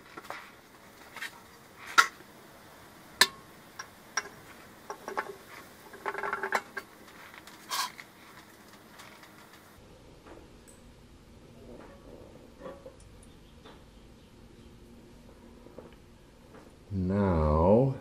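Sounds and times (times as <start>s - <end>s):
metallic clinks and knocks: 3.2s - 6.9s.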